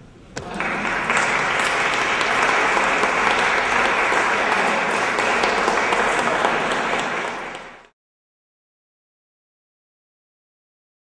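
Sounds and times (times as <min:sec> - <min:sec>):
audience applauding: 0:00.4 - 0:07.9.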